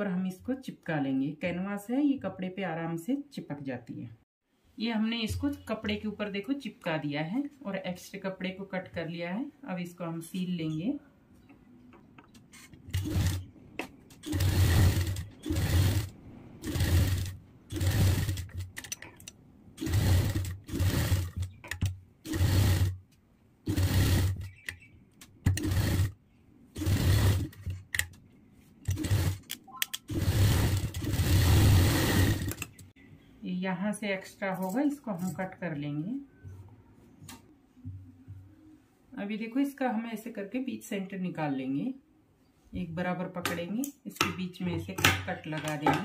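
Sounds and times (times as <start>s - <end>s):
sewing machine stitching: 12.8s - 13.5s, 14.1s - 19.0s, 19.8s - 23.0s, 23.7s - 24.6s, 25.5s - 26.2s, 26.8s - 28.1s, 28.9s - 29.4s, 30.0s - 32.8s.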